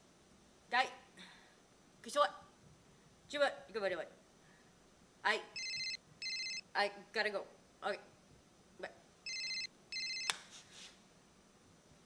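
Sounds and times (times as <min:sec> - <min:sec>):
phone ringing: 0:05.6 - 0:06.7, 0:09.3 - 0:10.4.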